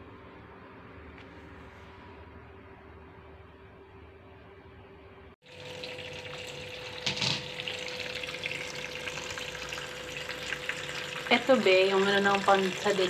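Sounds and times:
faint steady hum: 0.0 - 13.0
tap running into a bowl: 6.9 - 7.7.

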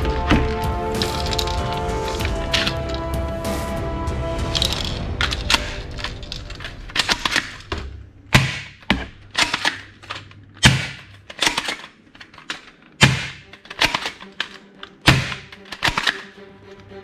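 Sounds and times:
plastic toy gun clicks: 8.4 - 16.4.

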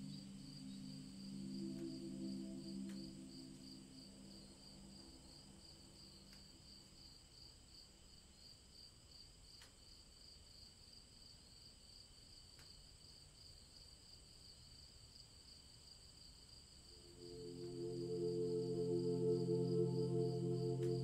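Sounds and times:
high-pitched chirring: 17.0 - 21.0.

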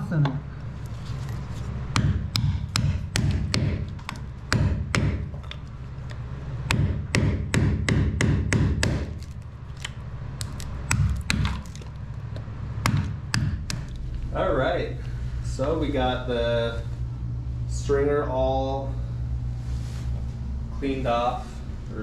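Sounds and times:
hammer striking a chisel: 1.9 - 5.3, 6.7 - 9.2, 12.8 - 13.9.

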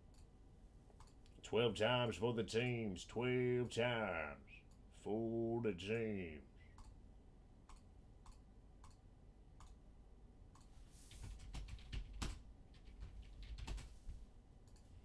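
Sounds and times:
computer mouse clicking: 7.7 - 9.0, 9.6 - 9.8, 10.5 - 13.9, 14.6 - 14.9.

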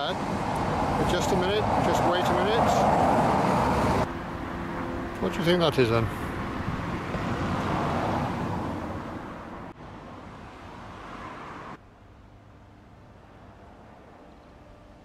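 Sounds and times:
car passing close by: 0.0 - 11.8
traffic hum: 0.0 - 15.0.

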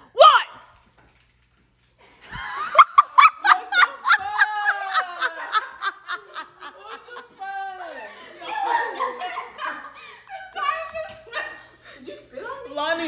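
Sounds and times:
woman laughing hard: 2.2 - 11.8.

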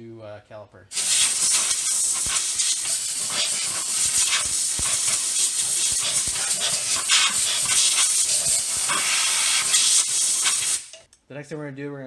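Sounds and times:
air blow gun hissing: 0.9 - 11.1.

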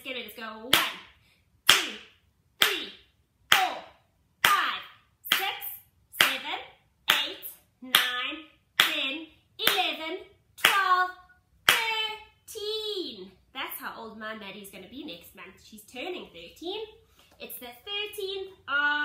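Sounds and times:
person counting in sing-song voice: 1.7 - 19.0
hand clapping: 8.8 - 9.0, 11.7 - 12.0.

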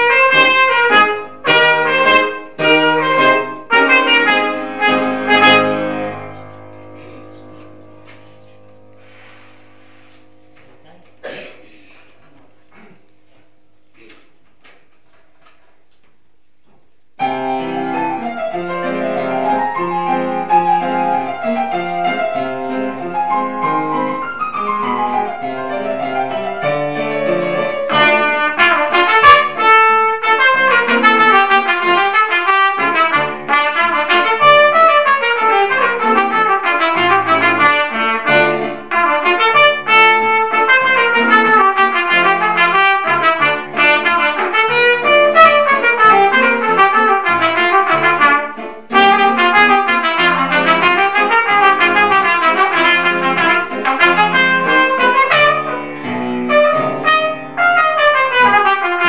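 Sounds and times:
trumpet melody: 0.0 - 11.4, 17.2 - 59.0
grand piano: 0.0 - 59.0.

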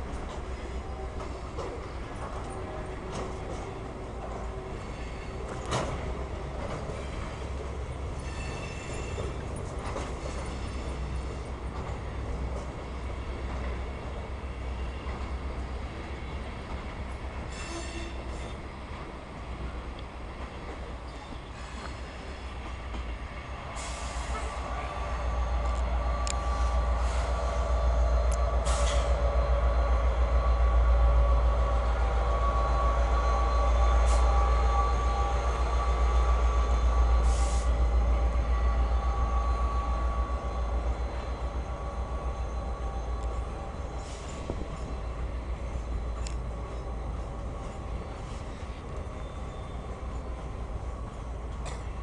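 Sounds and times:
diesel train rumbling past: 0.0 - 52.0
thin steady squeal: 8.2 - 9.4, 24.9 - 50.6.

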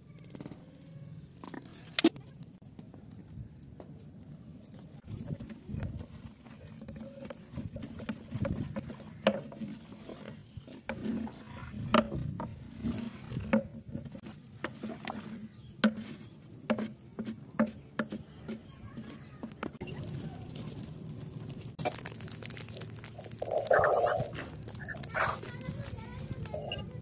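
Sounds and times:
wooden stick stirring food: 5.0 - 27.0
stick knocking and scraping pot: 5.2 - 19.9.

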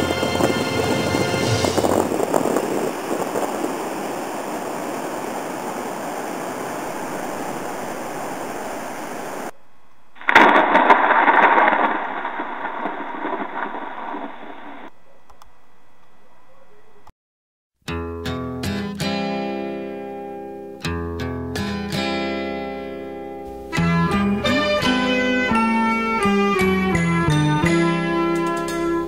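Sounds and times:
surf: 0.0 - 9.6, 10.2 - 14.9, 23.5 - 29.0
wind: 0.0 - 15.6.

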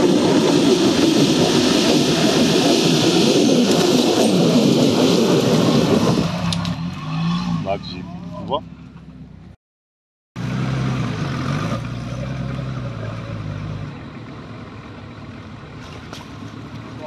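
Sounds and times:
car engine under load: 10.4 - 17.0.

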